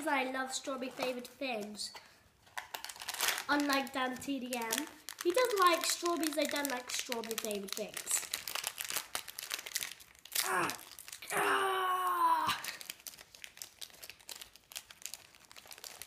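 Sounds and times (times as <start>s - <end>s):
foil snack packet crinkling: 2.4s - 11.3s, 12.6s - 16.0s
strained vocal groan: 10.4s - 12.7s
child groaning: 10.4s - 12.8s.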